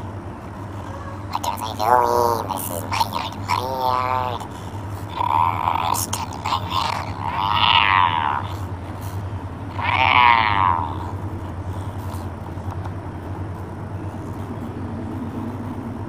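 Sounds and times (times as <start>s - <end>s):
steady low hum: 0.0s - 16.0s
wordless vocal sound: 0.8s - 12.7s.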